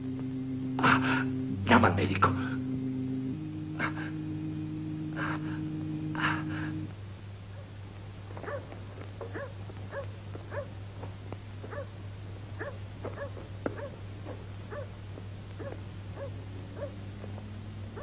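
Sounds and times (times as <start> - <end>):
held low chord: 0.0 - 6.9
steady low hum: 0.0 - 18.0
dog barking: 8.4 - 10.7, 11.7 - 11.9, 12.6 - 14.0, 14.7 - 15.0, 15.6 - 17.1.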